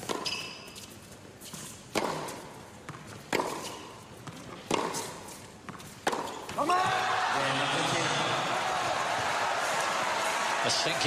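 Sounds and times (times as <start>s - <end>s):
tennis rackets hitting ball: 0.0s - 0.9s, 1.5s - 7.0s.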